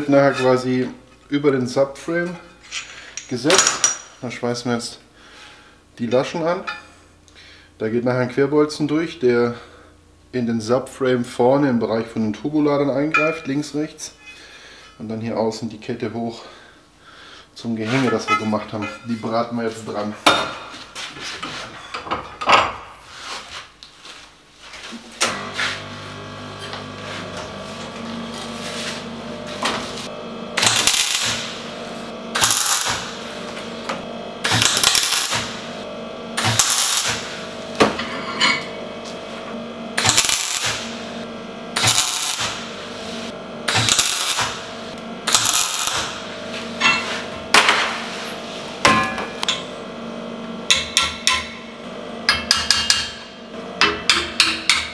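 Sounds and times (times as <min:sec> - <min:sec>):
welder hum: 0:24.9 - 0:54.9
welding arc crackling: 0:26.0 - 0:37.8, 0:39.9 - 0:46.9.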